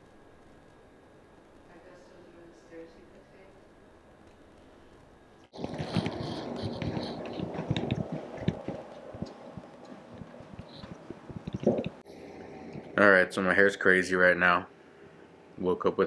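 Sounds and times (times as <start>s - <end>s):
clothing and bag rustling: 5.5s - 12.0s
footsteps on carpet: 5.6s - 11.5s.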